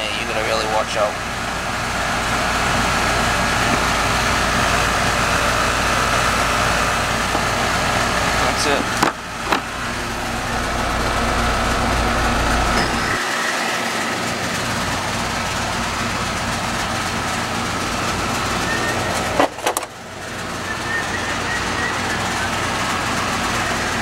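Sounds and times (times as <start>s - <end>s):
air conditioner unit humming: 0.0s - 24.0s
faint high tone: 12.7s - 14.8s.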